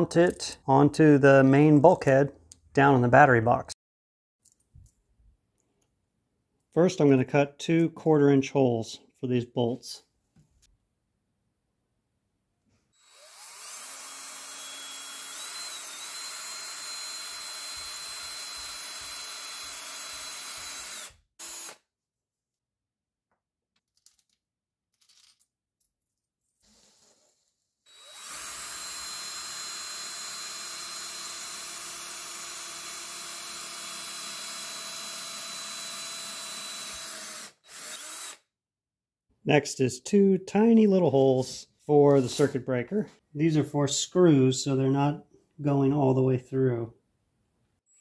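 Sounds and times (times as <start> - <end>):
drill whining through plastic: 13.0 - 21.9, 26.7 - 38.5.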